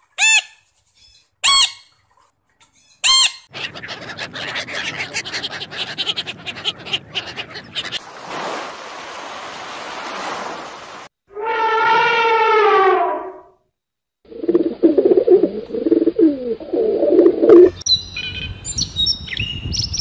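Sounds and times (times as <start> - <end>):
parrot squawking: 1.4 - 1.9, 3.0 - 8.0.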